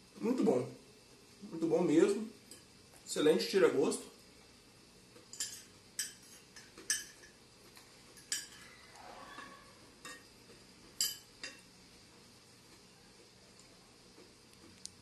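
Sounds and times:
cutlery clinking on glass plate: 5.3s - 7.4s, 8.2s - 8.7s, 9.4s - 10.3s, 11.0s - 11.6s
cutlery scraping plate: 5.3s - 7.4s, 8.2s - 10.3s.

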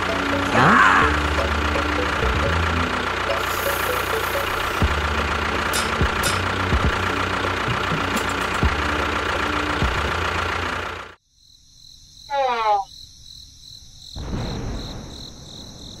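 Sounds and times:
small motor running: 0.0s - 11.1s.

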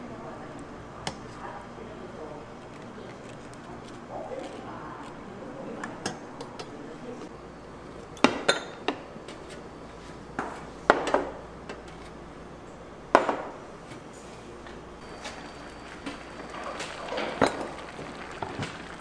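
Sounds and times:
dishes and utensils clinking: 15.0s - 19.0s.

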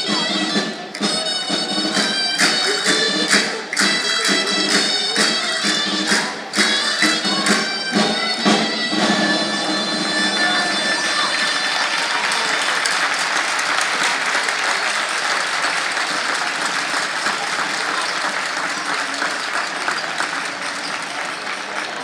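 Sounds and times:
crowd applauding: 10.3s - 22.0s.

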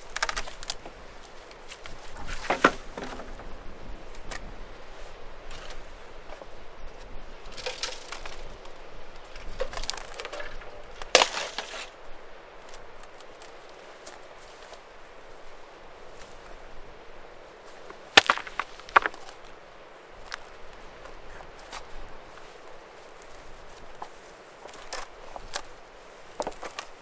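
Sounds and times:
scrapes and rustles: 0.0s - 12.0s
wooden boards knocking and clattering: 2.3s - 3.5s, 7.6s - 8.4s, 9.6s - 11.9s, 18.2s - 19.2s.

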